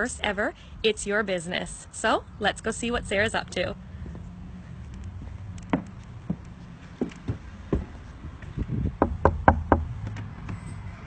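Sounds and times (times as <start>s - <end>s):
footsteps: 3.4s - 9.0s.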